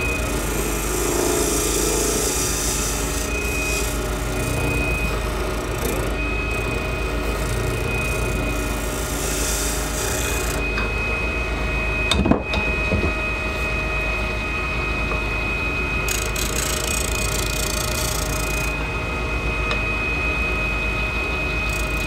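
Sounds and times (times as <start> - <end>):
turning tool scraping and cutting: 0.0 - 10.7, 16.1 - 18.7
wood lathe humming and whining: 0.0 - 22.0.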